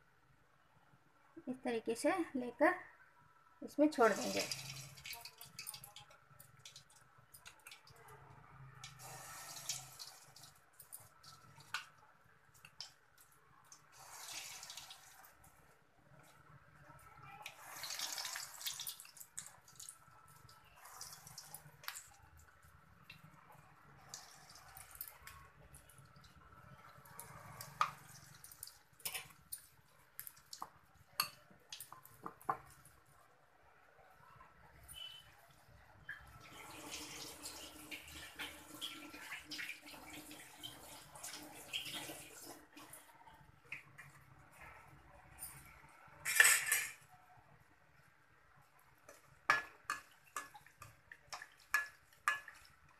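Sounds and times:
oil sizzling and popping: 0:04.1 - 0:08.0, 0:08.8 - 0:15.6, 0:17.4 - 0:25.4, 0:26.1 - 0:32.8, 0:49.0 - 0:52.9
oil crackles and pops: 0:17.4 - 0:23.4.

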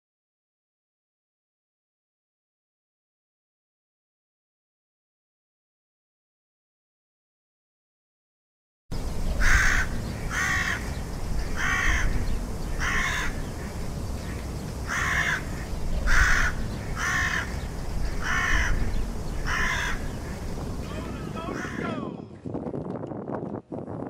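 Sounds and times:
steady low rumble: 0:08.9 - 0:22.7
crows cawing: 0:09.4 - 0:22.0.

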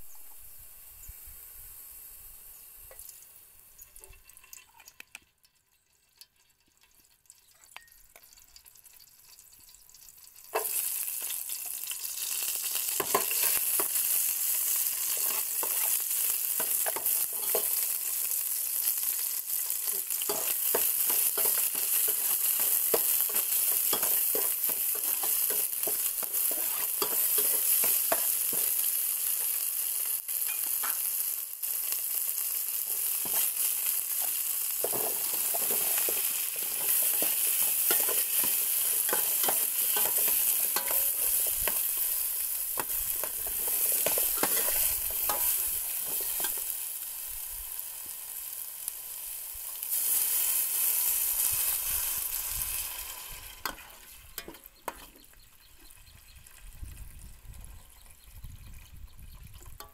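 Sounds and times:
garlic sizzling in a pot: 0:00.0 - 0:58.6, 0:59.5 - 0:59.9
metal ladle scraping a pot: 0:20.2 - 0:28.7, 0:34.8 - 0:46.7.

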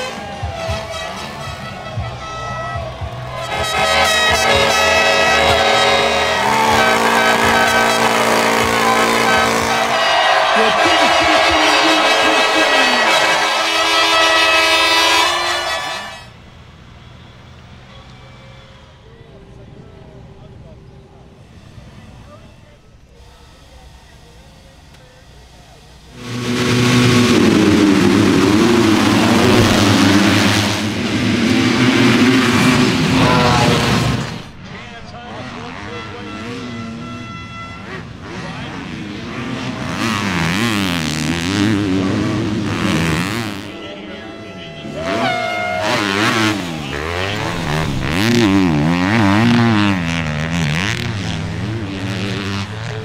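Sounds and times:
crowd cheering: 0:00.0 - 0:16.4, 0:26.2 - 0:34.8, 0:39.3 - 0:51.6
air horns blaring: 0:00.0 - 0:16.5, 0:26.1 - 0:34.6, 0:35.3 - 0:52.9
motocross bikes revving and accelerating: 0:03.4 - 0:16.0, 0:26.2 - 0:53.0.

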